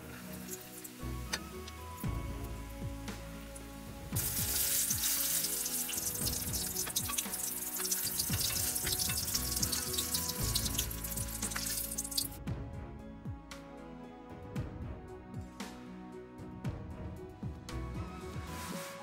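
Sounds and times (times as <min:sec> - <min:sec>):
oil deep-frying and sizzling: 0:00.0 - 0:12.4
background music: 0:00.0 - 0:19.0.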